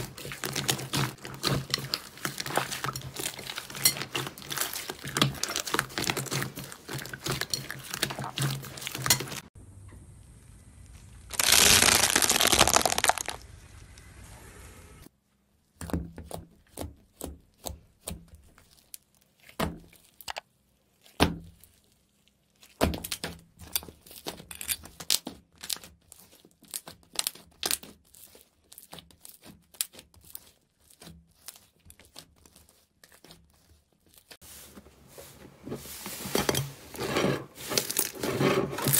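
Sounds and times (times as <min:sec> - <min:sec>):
slime crackling and popping: 0:11.2 - 0:13.4, 0:25.0 - 0:34.4.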